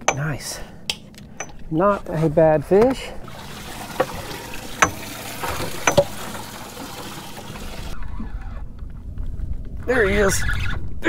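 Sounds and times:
water trickling and splashing: 2.8s - 8.0s.

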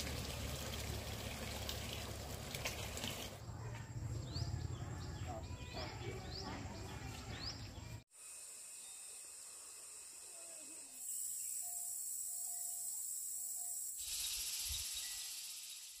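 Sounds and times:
high-pitched insect chirring: 8.3s - 16.0s.

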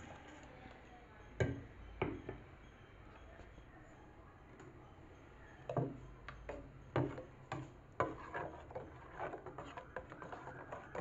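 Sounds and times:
metal spoon scraping a pot: 6.4s - 11.0s.

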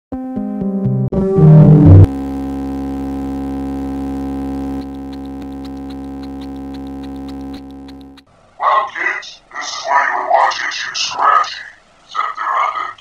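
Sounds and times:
falling synthesizer notes: 0.9s - 8.3s
electronic drone: 1.3s - 8.3s.

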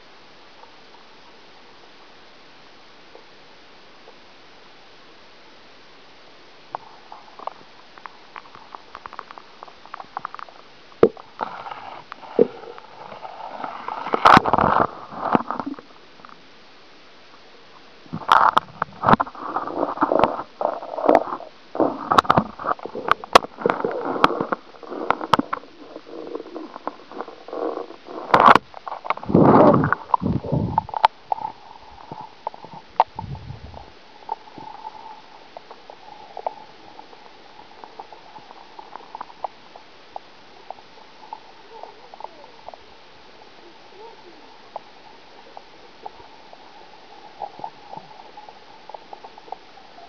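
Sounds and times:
underwater camera handling noise: 22.0s - 33.2s.

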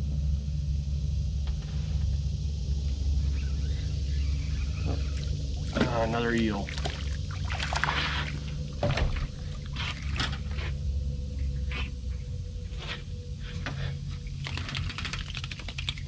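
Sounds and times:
low background rumble: 0.0s - 16.0s
squelches and scrapes of eel: 6.7s - 8.6s, 9.4s - 10.8s.

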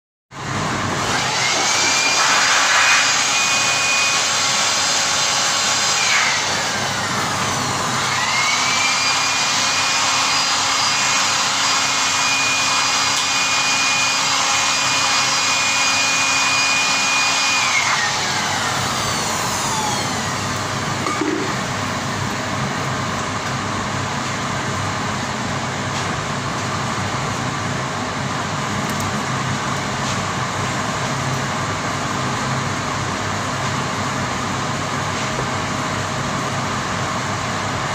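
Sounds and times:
steady mechanical running noise: 4.2s - 37.9s
small electric motor whining: 5.9s - 20.6s.

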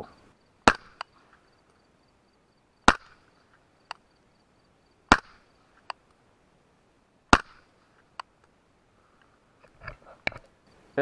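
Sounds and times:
suppressed rifle shots: 0.6s - 1.2s, 2.8s - 4.0s, 5.1s - 6.0s, 7.3s - 7.7s.

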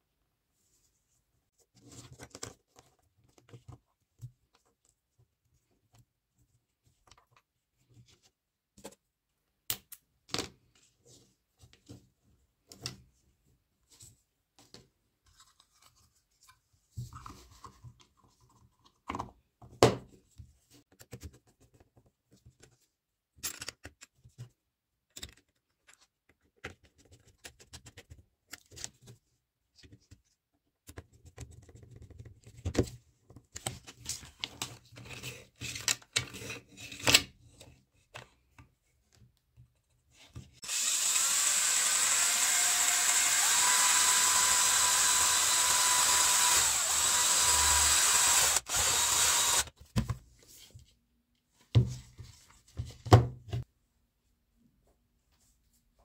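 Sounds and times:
rotary tool whining: 40.6s - 49.7s.

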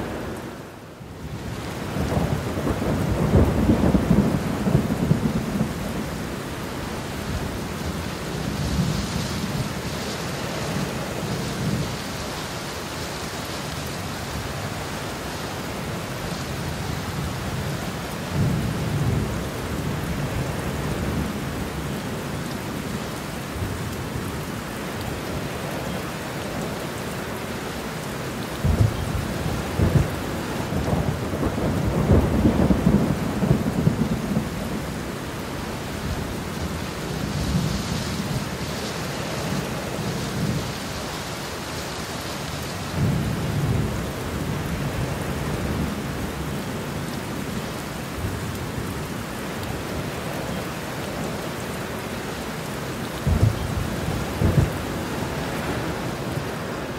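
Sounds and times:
heavy rain: 0.0s - 56.9s
thunder rumbling: 1.3s - 6.4s, 28.6s - 38.6s, 53.2s - 56.9s.

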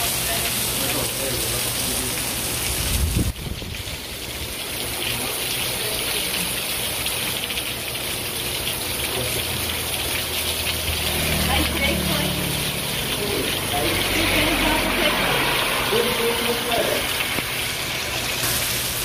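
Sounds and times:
heavy rain pouring: 0.0s - 19.0s.

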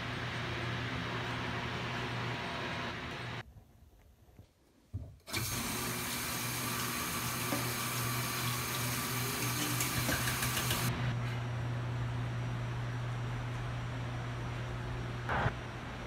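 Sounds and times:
tap water pouring into sink: 5.3s - 10.9s.

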